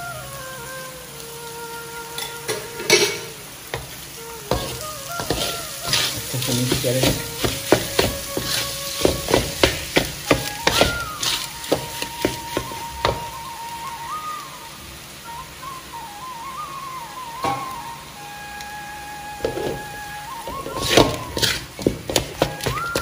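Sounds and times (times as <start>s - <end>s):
wooden spatula scraping pan: 3.7s - 13.2s, 19.4s - 19.9s, 20.5s - 23.0s
soft background music: 4.5s - 14.7s, 15.6s - 23.0s.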